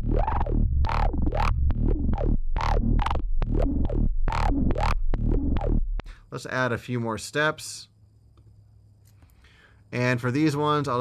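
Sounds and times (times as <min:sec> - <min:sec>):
rising and falling resonant sweeps: 0:00.0 - 0:06.0
steady bass: 0:00.0 - 0:06.2.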